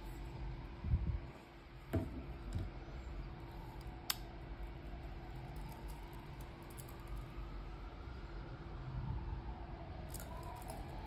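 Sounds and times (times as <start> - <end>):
faint steady hum: 0.0 - 11.0
wristwatch handling: 5.0 - 7.4.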